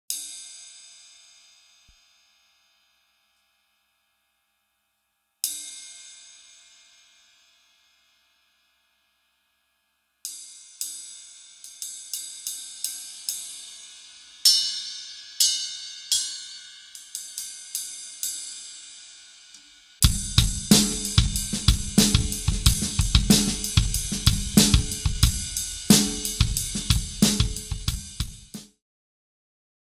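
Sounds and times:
ride cymbal played with stick: 0:00.1 - 0:04.0, 0:05.4 - 0:09.3, 0:10.2 - 0:28.8
bass drum and snare groove: 0:20.0 - 0:28.8.

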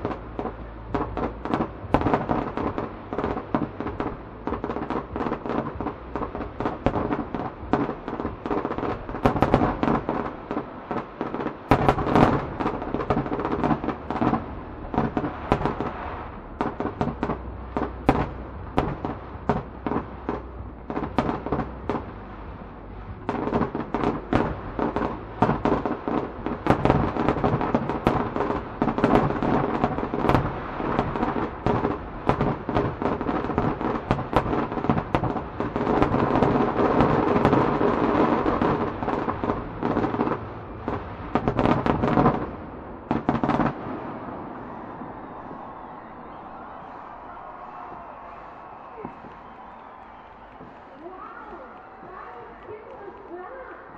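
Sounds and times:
fireworks bursts and crackle: 0:00.0 - 0:53.9
low fireworks rumble: 0:00.0 - 0:53.9.

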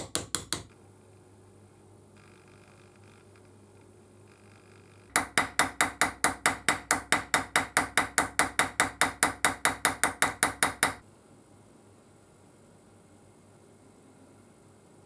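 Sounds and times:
steel punch tapping metal plate: 0:00.0 - 0:00.7, 0:05.1 - 0:11.0.

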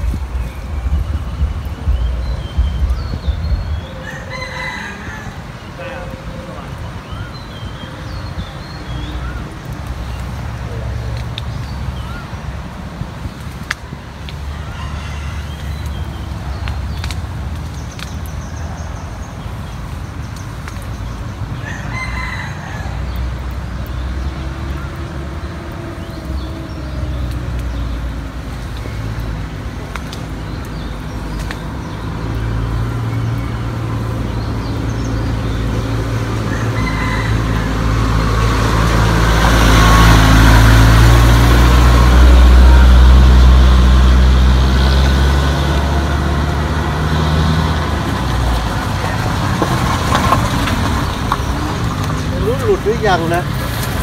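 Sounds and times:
rooster crowing: 0:03.8 - 0:06.4, 0:14.4 - 0:15.7, 0:21.6 - 0:23.1, 0:36.4 - 0:38.4.

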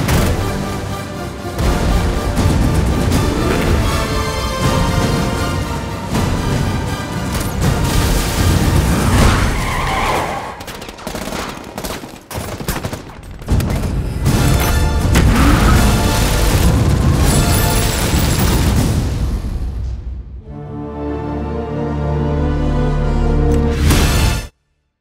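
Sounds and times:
dramatic trailer music: 0:00.0 - 0:10.3, 0:13.5 - 0:24.7
rapid gunfire: 0:10.2 - 0:19.1.

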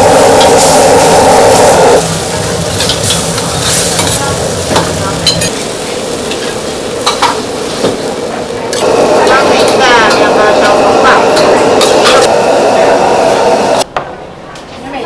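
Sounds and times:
noodles sizzling in a wok: 0:00.0 - 0:13.8.

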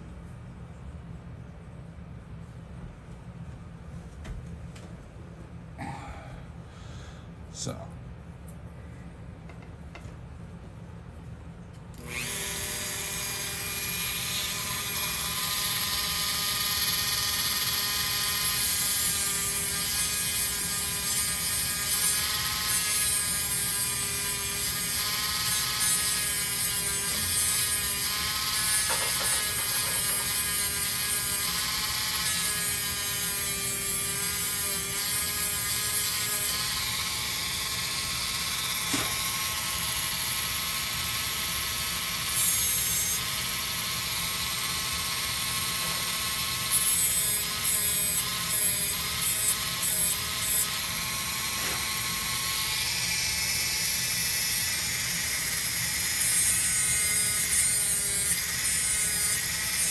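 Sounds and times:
rotary tool sanding wood: 0:12.0 - 0:59.9.

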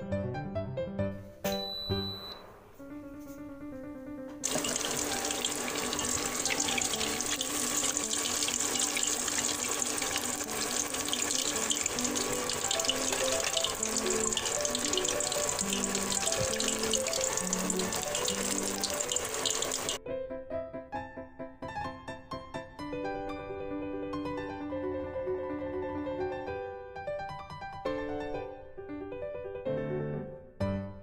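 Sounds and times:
background music: 0:00.0 - 0:21.6
chicken sizzling in hot oil: 0:04.4 - 0:20.0.

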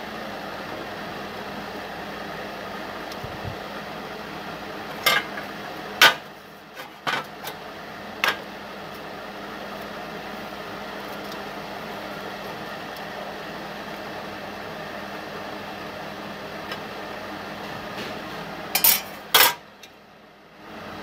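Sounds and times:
steady background hum: 0:00.0 - 0:21.0
steel bar clanking on plate: 0:05.0 - 0:05.4, 0:18.8 - 0:19.6.

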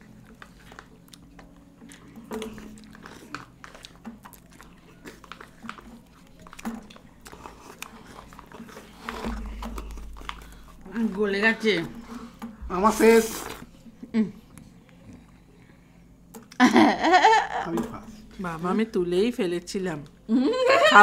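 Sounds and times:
lip smacks and slurping: 0:00.2 - 0:10.8
spoons scraping plastic cups: 0:02.3 - 0:13.7.

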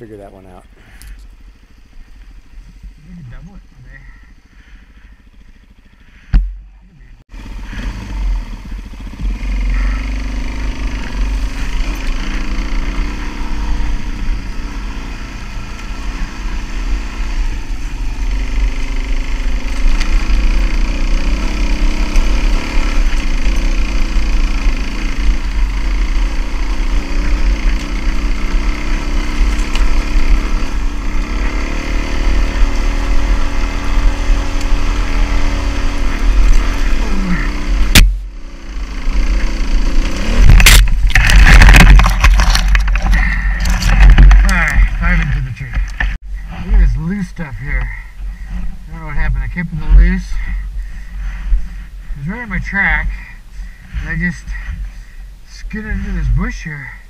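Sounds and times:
dirt bike engine climbing under load: 0:02.5 - 0:47.0.

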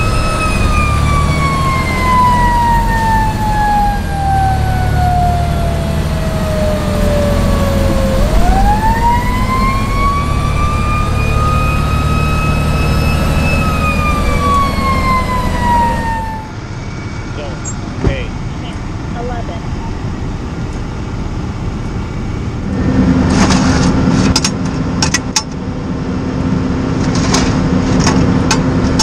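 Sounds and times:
siren wailing: 0:00.0 - 0:18.0
truck engine rumbling: 0:00.0 - 0:29.0.

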